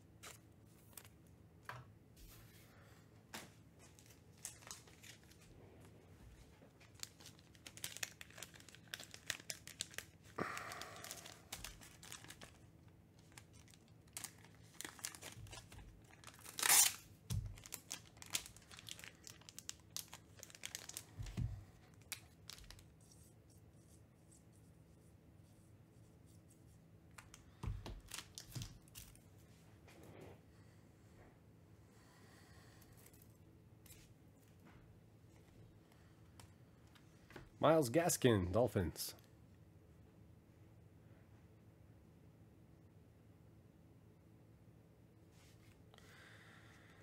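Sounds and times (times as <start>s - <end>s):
card wrappers tearing and crinkling: 3.9s - 5.5s, 6.8s - 23.0s, 27.9s - 29.2s.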